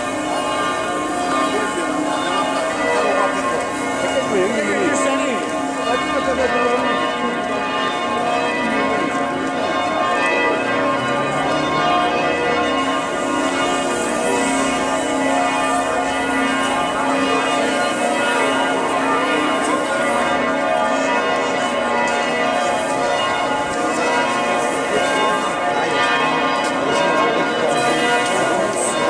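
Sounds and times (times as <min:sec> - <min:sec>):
church bells pealing: 0:00.0 - 0:29.0.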